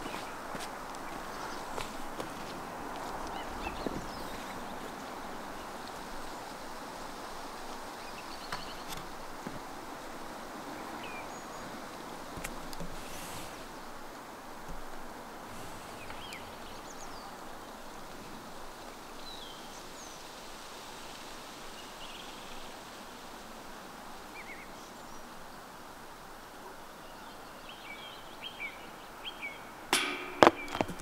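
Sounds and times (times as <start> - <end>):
outdoor background noise: 0.0 - 31.0
loud sharp knock: 29.9 - 31.0.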